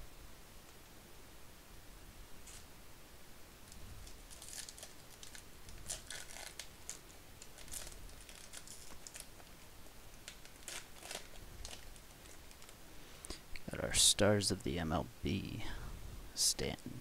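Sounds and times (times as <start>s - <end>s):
foil wrapper tearing and crinkling: 2.4s - 2.6s, 4.0s - 9.5s, 10.2s - 12.8s.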